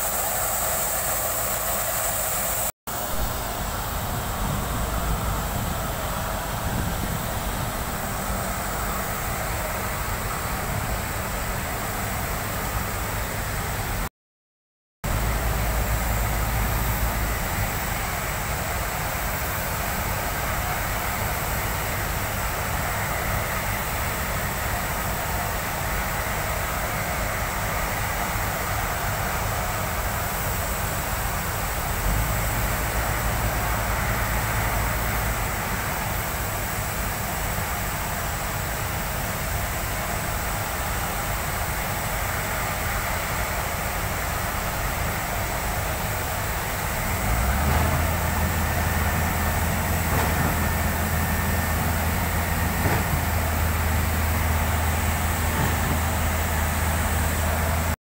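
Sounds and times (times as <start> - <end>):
concrete pump mechanical drone: 0.0 - 14.1, 15.1 - 58.0
deep rumble: 3.0 - 7.9.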